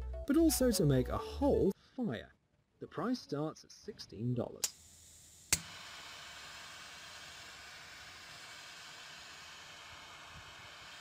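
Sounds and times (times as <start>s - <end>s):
torch flame hissing: 4.7s - 11.0s.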